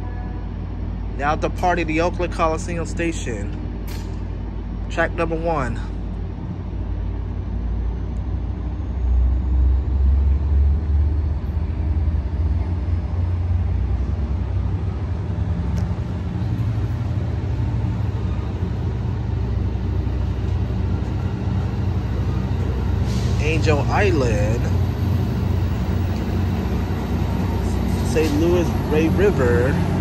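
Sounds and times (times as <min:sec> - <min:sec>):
diesel locomotive rumble: 0:00.0 - 0:30.0
train cars rolling on rails: 0:08.6 - 0:30.0.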